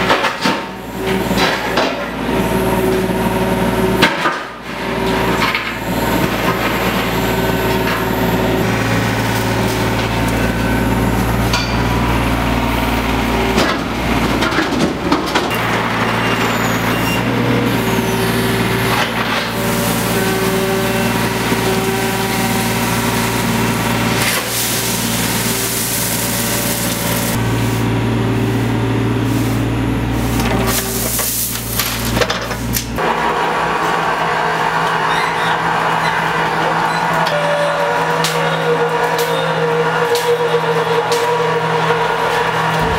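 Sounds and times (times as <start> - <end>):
excavator diesel engine: 0.0 - 42.9
bucket scraping gravel: 18.1 - 27.4, 30.3 - 32.2.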